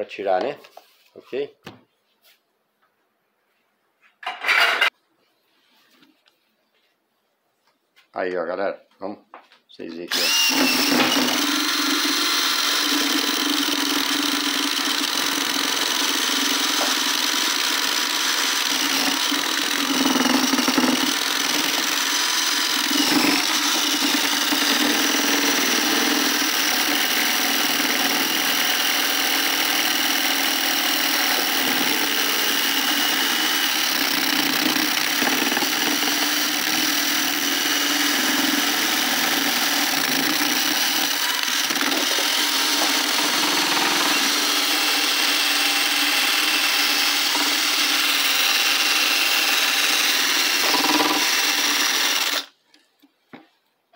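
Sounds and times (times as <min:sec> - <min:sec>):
cordless drill running under load: 0:10.1 - 0:52.6.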